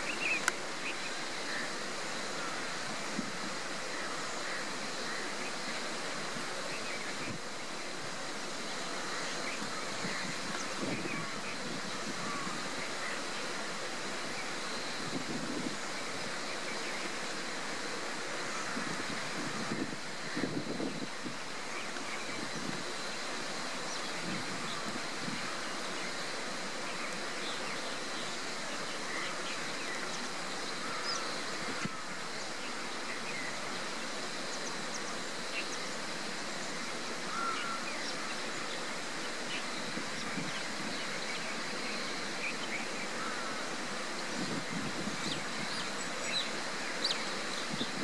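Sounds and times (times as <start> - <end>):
steady even hiss: 0.0 - 48.0.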